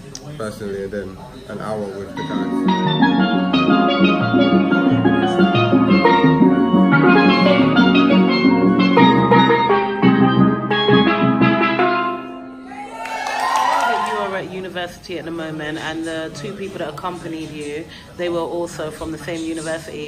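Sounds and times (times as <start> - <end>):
steel band playing: 1.7 - 12.9.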